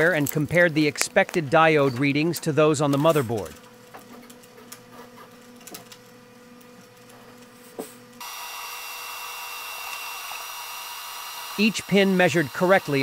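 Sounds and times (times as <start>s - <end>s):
low electrical hum: 0.0s - 13.0s
hiss with high-pitched whine: 8.2s - 13.0s.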